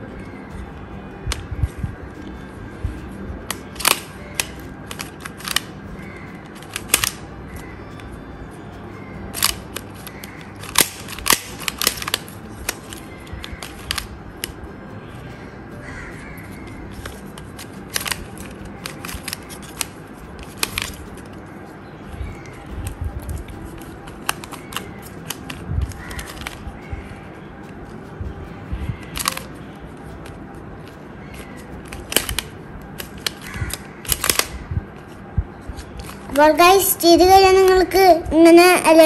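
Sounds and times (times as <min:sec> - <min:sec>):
plastic puzzle clicking: 0:03.4 - 0:08.1, 0:09.3 - 0:14.6, 0:16.6 - 0:21.4, 0:22.3 - 0:26.9, 0:28.9 - 0:29.6, 0:30.2 - 0:35.1.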